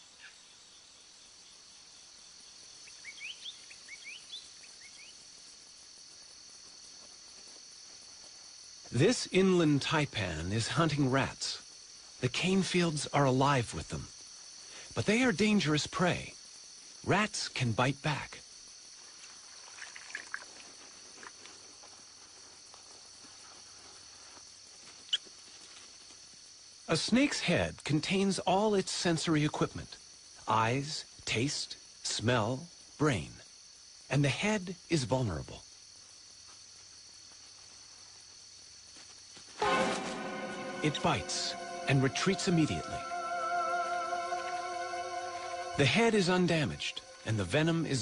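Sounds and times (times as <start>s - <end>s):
crickets chirping: 0.0s - 48.0s
night insects chorus: 0.0s - 48.0s
short rising chirps: 39.6s - 47.3s.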